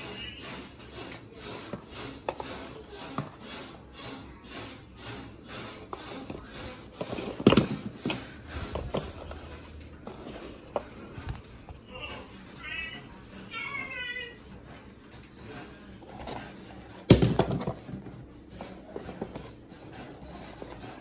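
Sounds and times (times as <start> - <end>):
cardboard boxes rubbing and scraping: 0.0 - 11.2, 16.0 - 21.0.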